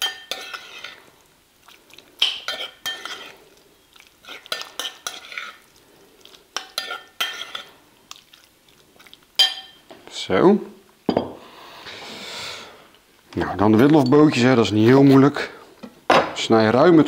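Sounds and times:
spoon clinking and scraping bowl: 0.0s - 1.1s, 2.2s - 5.7s, 6.6s - 7.8s, 9.4s - 9.9s.

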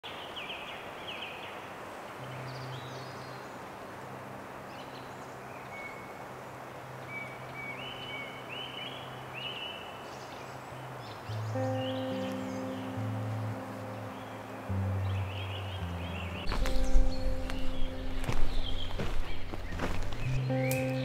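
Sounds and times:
steady outdoor hiss: 0.0s - 21.0s.

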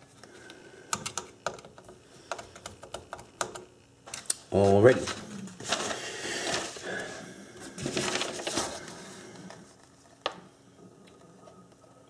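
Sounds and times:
rustling and scraping: 4.6s - 10.2s.

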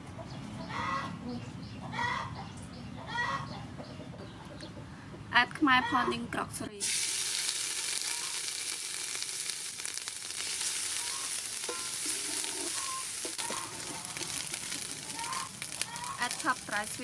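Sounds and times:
curry paste sizzling in oil: 6.8s - 17.0s
wooden ladle stirring in pot: 10.4s - 16.7s.

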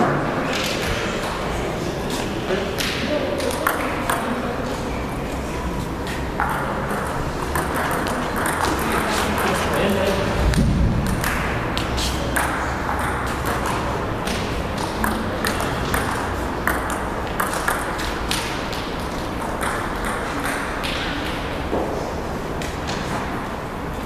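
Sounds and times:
table tennis ball clicking: 6.4s - 9.7s.

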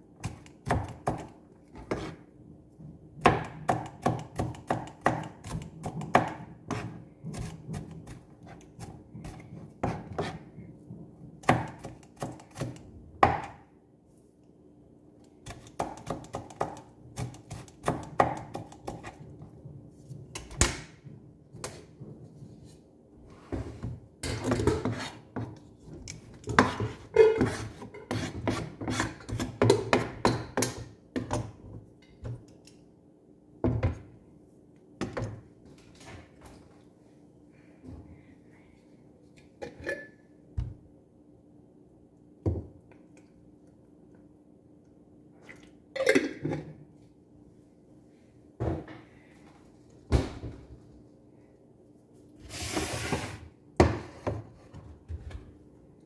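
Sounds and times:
knife chopping on plastic board: 0.2s - 2.1s, 3.2s - 10.4s, 11.4s - 13.6s, 15.4s - 19.2s.

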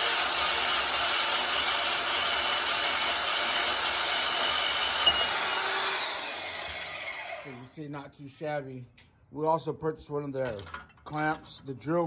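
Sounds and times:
band saw cutting metal tubing: 0.0s - 7.7s.

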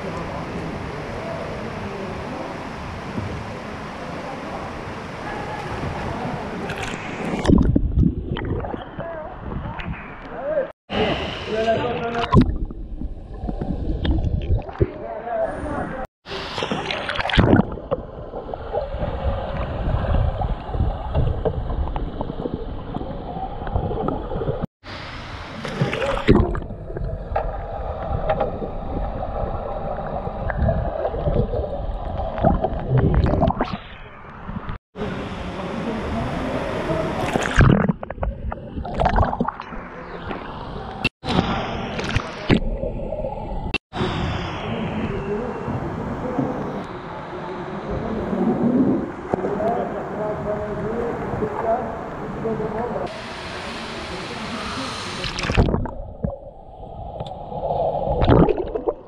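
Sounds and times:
muffled underwater gurgling: 25.8s - 34.7s, 54.3s - 59.0s.

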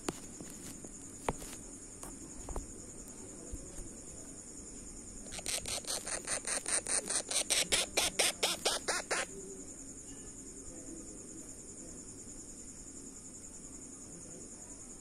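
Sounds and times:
parakeet chick begging calls: 5.3s - 9.3s.

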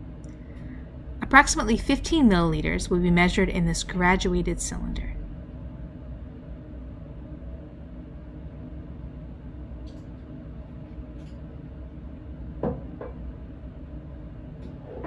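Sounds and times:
low room hum: 0.0s - 15.0s
glass knocking on benchtop: 12.6s - 13.2s.

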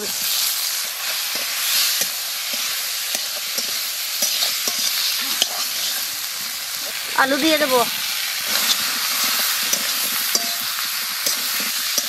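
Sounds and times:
food sizzling in hot oil: 0.0s - 12.0s
metal spatula scraping pan: 0.2s - 6.2s, 8.4s - 12.0s.

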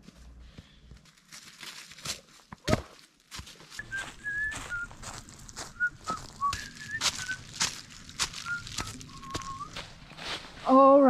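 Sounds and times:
footsteps on gravel: 0.0s - 11.0s
short whistled notes: 3.8s - 5.1s, 5.7s - 7.5s, 8.4s - 9.8s.

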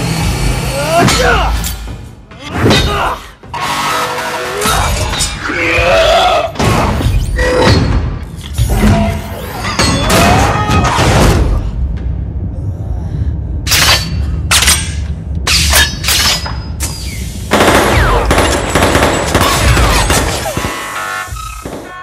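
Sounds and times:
deep rumble: 10.2s - 15.5s
gunshots and impacts: 17.5s - 22.0s.

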